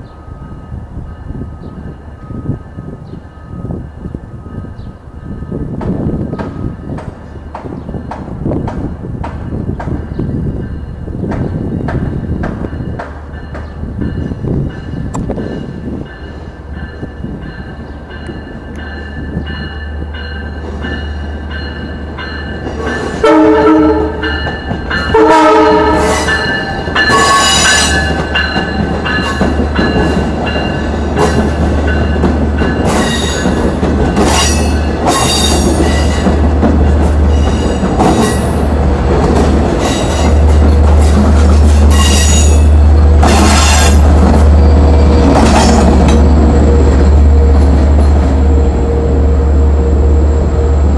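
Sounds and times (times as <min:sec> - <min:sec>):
train wheels clattering: 0:11.2 - 0:47.0
train horn blasts: 0:23.1 - 0:28.1.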